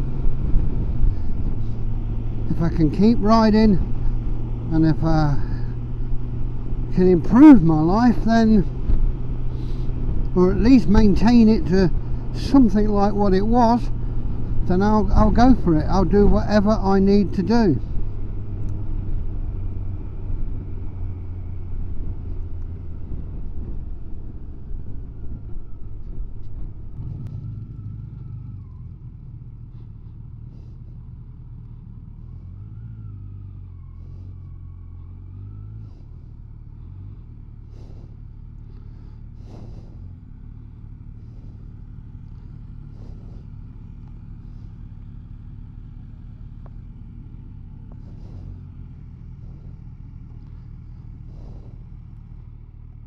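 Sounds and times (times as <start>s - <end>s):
wind rush: 0.0s - 2.5s
motorcycle engine: 0.0s - 53.0s.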